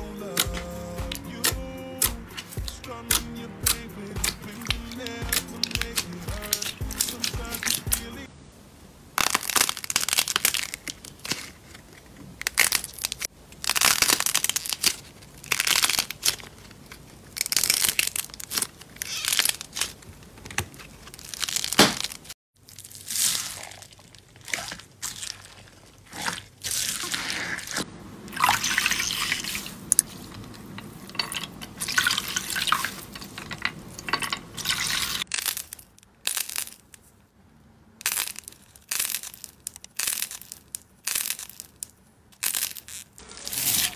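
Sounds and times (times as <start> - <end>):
slime squishing and crackling: 9.2 - 37.1, 38.0 - 43.9.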